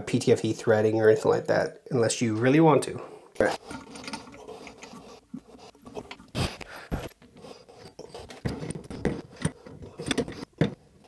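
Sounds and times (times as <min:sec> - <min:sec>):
plastic fittings scraping and clicking: 0:03.5 - 0:11.0.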